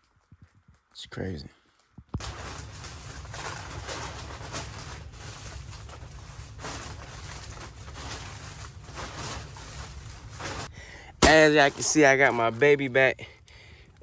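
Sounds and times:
plastic bags crinkling: 2.2 - 12.7
steady low hum: 2.2 - 14.0.

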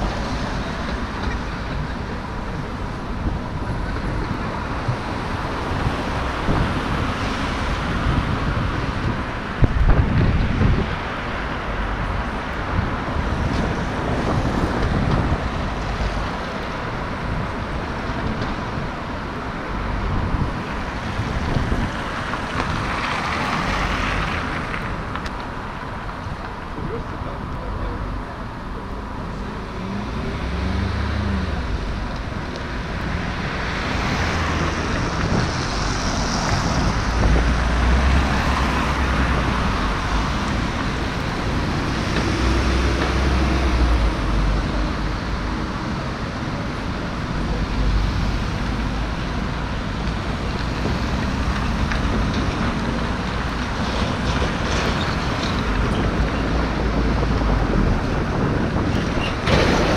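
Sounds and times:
steady low traffic rumble: 0.0 - 59.9
cars and truck driving past: 29.2 - 32.2.

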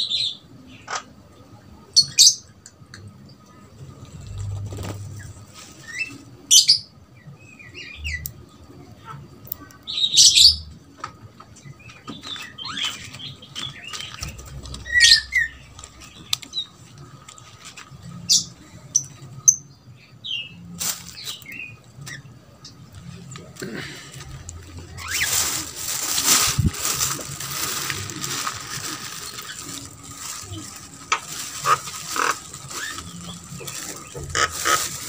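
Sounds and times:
birds whistling and squawking: 12.0 - 16.7.

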